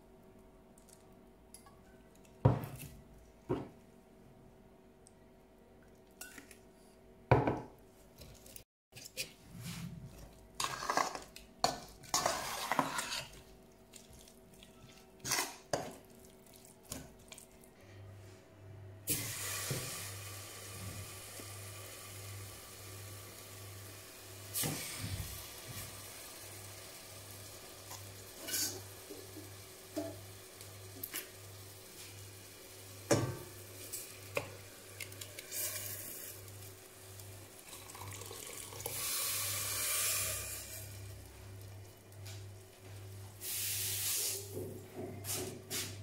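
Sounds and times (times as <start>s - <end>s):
spoon scraping metal bowl: 12.1s - 13.4s.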